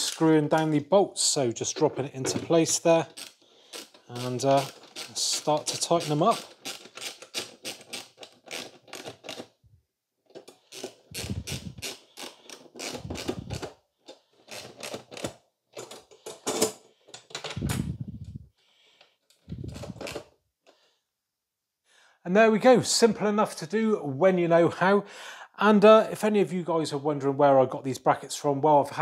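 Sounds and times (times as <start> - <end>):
socket ratchet clicking: 3.1 - 9.5, 10.5 - 13.7, 14.5 - 15.3.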